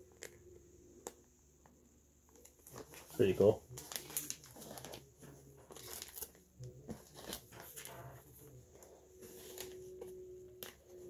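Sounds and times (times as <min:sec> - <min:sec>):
plastic sleeve rustling: 0:02.3 - 0:11.0.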